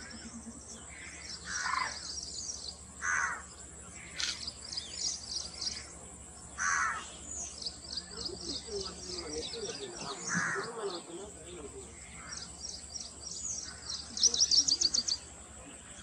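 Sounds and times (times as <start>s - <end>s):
small birds chirping: 0.0s - 16.0s
loud short bird calls: 0.9s - 2.2s, 3.0s - 5.9s, 6.6s - 11.0s.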